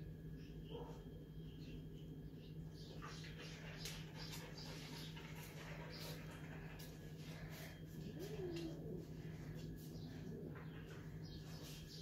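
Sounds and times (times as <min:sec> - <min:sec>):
steady low hum: 0:00.0 - 0:12.0
dog panting: 0:03.0 - 0:09.2.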